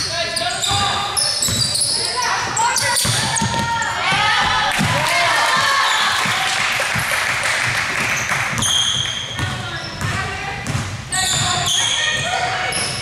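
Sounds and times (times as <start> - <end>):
sneakers squeaking: 0.0 - 13.0
basketball bouncing on hardwood: 2.9 - 5.0, 8.4 - 12.4.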